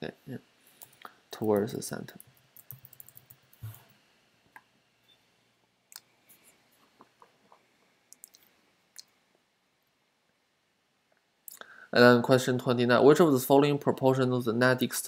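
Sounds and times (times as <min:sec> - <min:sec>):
keyboard and mouse clicks: 0:00.8 - 0:03.8.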